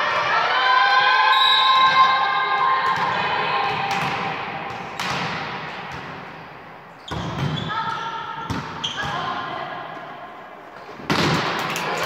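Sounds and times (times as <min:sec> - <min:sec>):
girls cheering: 0:00.2 - 0:04.0
volleyball bouncing on floor: 0:02.8 - 0:06.2, 0:07.1 - 0:09.3.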